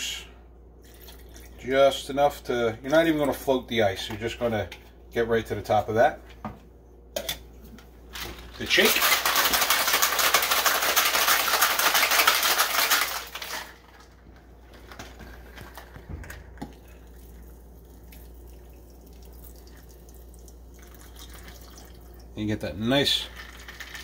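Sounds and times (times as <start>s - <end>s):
drink pouring into glass: 0.8s - 1.6s, 15.2s - 22.3s, 23.3s - 24.0s
ice rattling in cocktail shaker: 8.2s - 14.1s, 22.9s - 24.0s.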